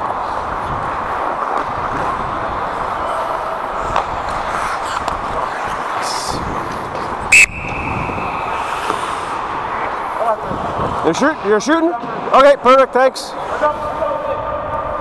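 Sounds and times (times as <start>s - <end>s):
ice rink noise: 0.0s - 15.0s
referee's whistle blast: 7.3s - 8.7s.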